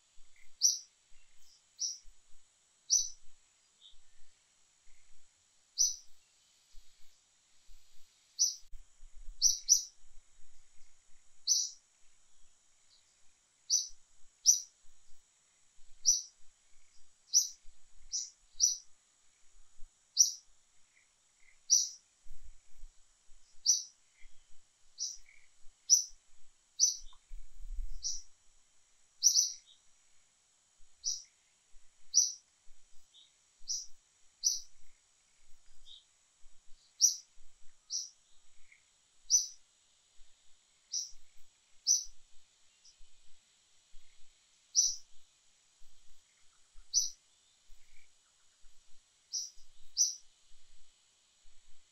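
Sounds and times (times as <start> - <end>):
faint high hiss: 0.0 - 51.9
bird chirping: 0.2 - 2.1, 2.9 - 5.2, 5.8 - 8.7, 9.4 - 10.0, 10.8 - 11.8, 12.8 - 15.2, 16.0 - 18.9, 20.1 - 22.1, 23.5 - 26.2, 26.8 - 28.3, 29.2 - 29.9, 31.0 - 31.4, 32.0 - 36.1, 36.7 - 39.6, 40.9 - 45.2, 45.8 - 50.3.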